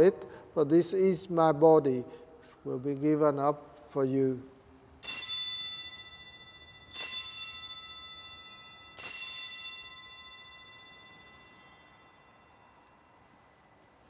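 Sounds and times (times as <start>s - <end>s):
altar bell ringing: 5.0s - 14.0s.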